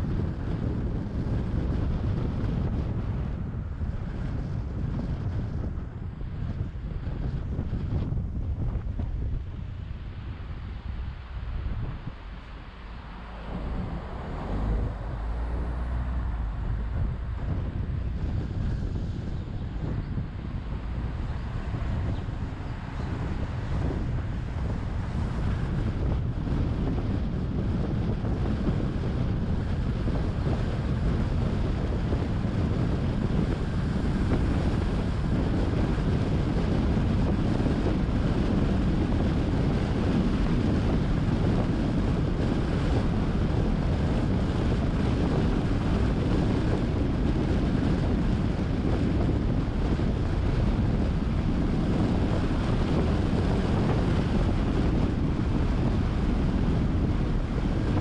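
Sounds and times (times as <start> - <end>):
road and tyre noise: 0.0 - 58.0
wind rush on microphone: 0.0 - 58.0.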